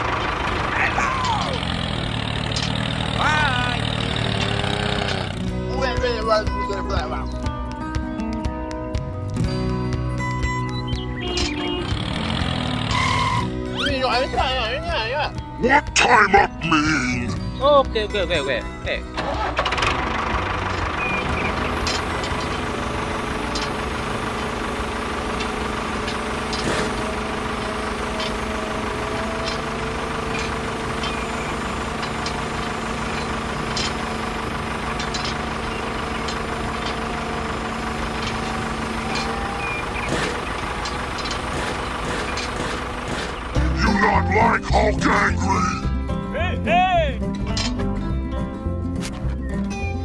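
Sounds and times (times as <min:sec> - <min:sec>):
small electric motors whining: 0:11.4 - 0:13.9, 0:21.0 - 0:43.8
gear clicks: 0:28.0 - 0:43.8.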